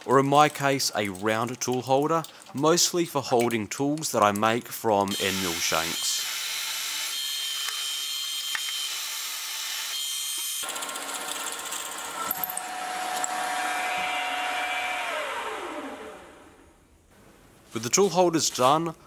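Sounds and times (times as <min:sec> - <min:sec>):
milling machine drilling steel: 0:05.1 - 0:16.2.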